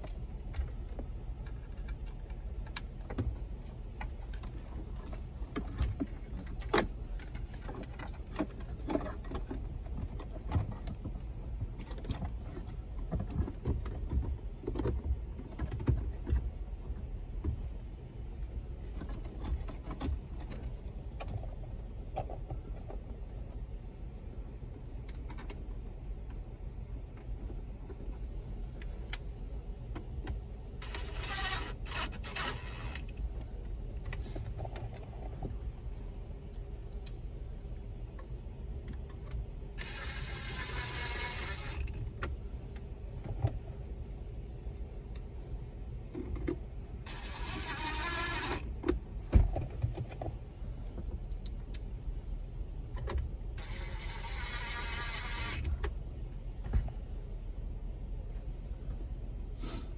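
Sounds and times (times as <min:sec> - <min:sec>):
cordless driver whirring: 0:30.8 - 0:33.1, 0:39.8 - 0:41.9, 0:47.1 - 0:48.7, 0:53.6 - 0:55.8.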